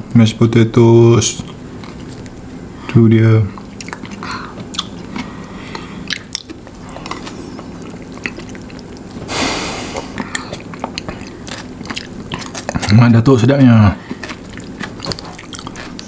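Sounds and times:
wet chewing and lip smacks: 1.4s - 2.5s, 3.5s - 9.3s, 10.0s - 13.3s, 13.9s - 16.0s
hiss of breath: 9.3s - 10.2s.

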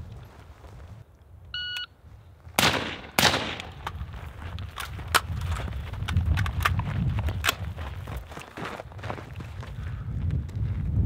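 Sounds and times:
footsteps running on dry brush: 0.0s - 1.0s, 3.9s - 11.0s
shot timer beep: 1.6s - 1.9s
suppressed rifle shots: 2.6s - 3.8s.

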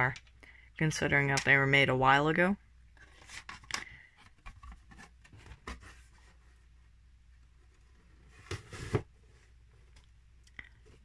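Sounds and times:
cardboard rustle and scrape: 4.3s - 6.7s, 7.7s - 9.6s.

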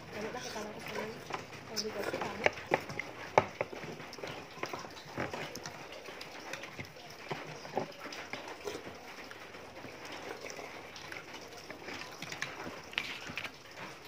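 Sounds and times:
restaurant noise: 0.0s - 14.0s
spoon scraping in a bowl: 0.2s - 3.0s.

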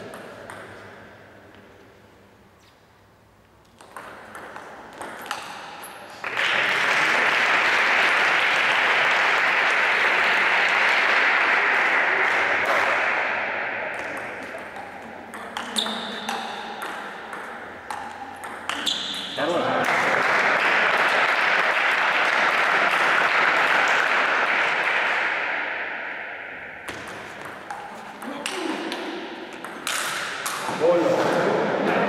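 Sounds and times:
ball bouncing on table: 0.0s - 1.0s, 3.7s - 5.9s, 13.9s - 19.4s, 26.8s - 30.7s
applause: 6.2s - 13.2s, 19.8s - 25.3s
table tennis ball clicks: 14.0s - 19.2s.

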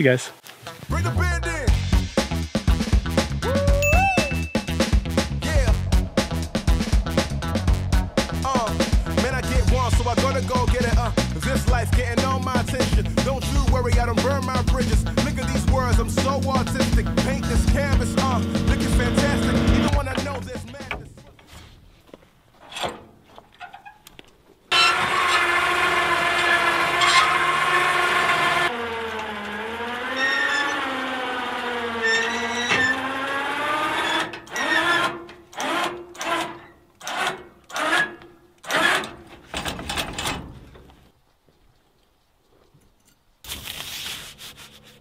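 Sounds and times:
motor running in bursts: 13.0s - 19.9s, 24.9s - 34.3s.

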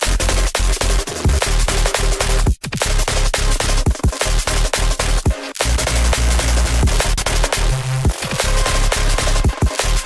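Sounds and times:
breakbeat electronic music: 0.0s - 10.0s
fast drums: 0.0s - 10.0s
heavy bass: 0.0s - 10.0s.

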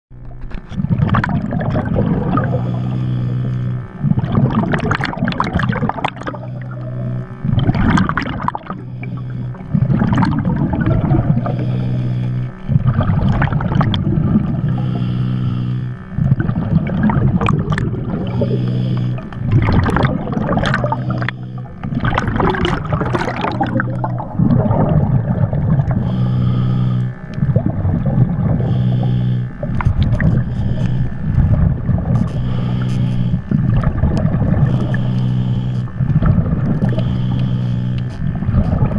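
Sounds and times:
low hum: 0.1s - 38.9s
exhaled bubbles: 0.7s - 38.9s
diver breathing through regulator: 1.9s - 3.9s, 6.2s - 25.0s, 25.7s - 27.8s, 28.5s - 31.4s.

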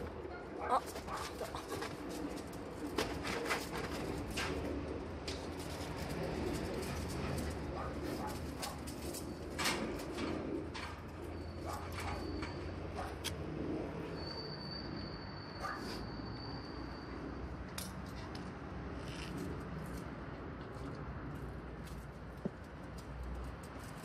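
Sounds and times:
pigeon cooing: 0.6s - 5.0s
dog leash clicking and rustling: 0.8s - 11.0s, 17.8s - 24.0s.

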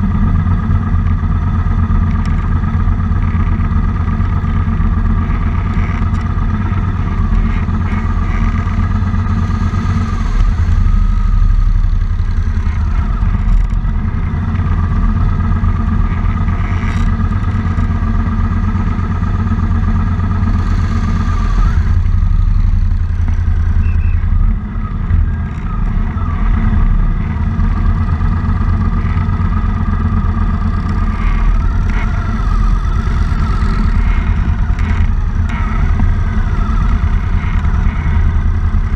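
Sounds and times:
motorcycle engines idling: 0.0s - 38.9s.

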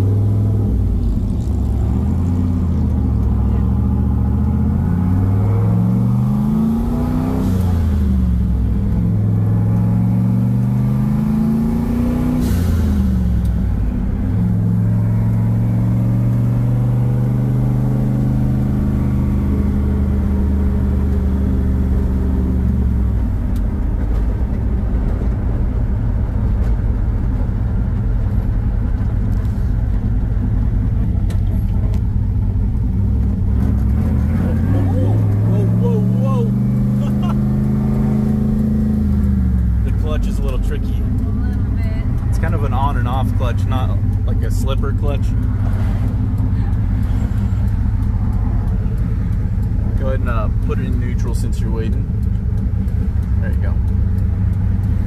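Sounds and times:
car engine accelerating through gears: 0.0s - 55.0s.

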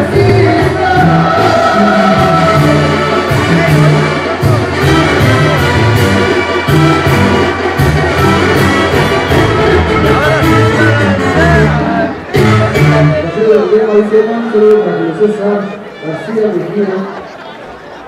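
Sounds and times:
percussion beat: 0.0s - 13.2s
brass band music: 0.0s - 16.8s.

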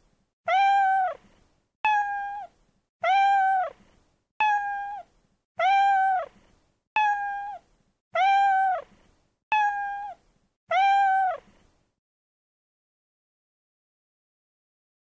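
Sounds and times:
cat meowing: 0.5s - 1.2s, 1.9s - 3.8s, 4.4s - 6.4s, 7.0s - 7.6s, 8.2s - 8.9s, 9.5s - 11.5s.

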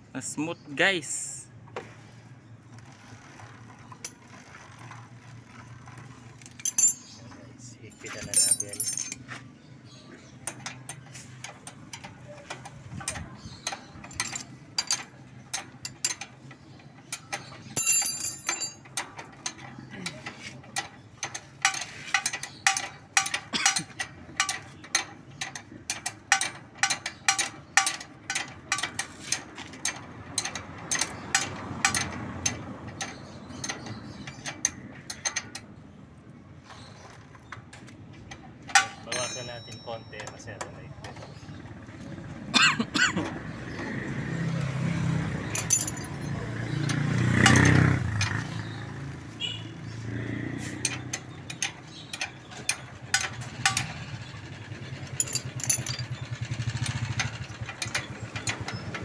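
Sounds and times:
drive chain clicking over sprocket: 10.4s - 35.8s, 50.5s - 59.0s.

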